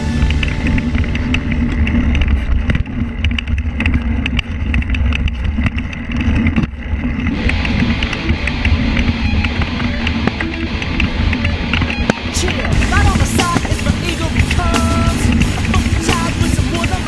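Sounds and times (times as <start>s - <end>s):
guitar rock music: 0.0s - 2.6s, 7.2s - 17.0s
bike rattling and clicking: 0.0s - 17.0s
wind noise on microphone: 0.0s - 17.0s.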